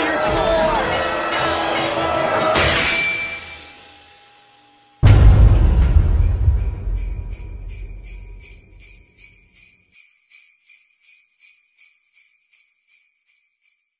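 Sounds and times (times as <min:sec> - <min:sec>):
deep booming hit: 0:05.0 - 0:09.0
jingle bells shaken: 0:06.5 - 0:13.9.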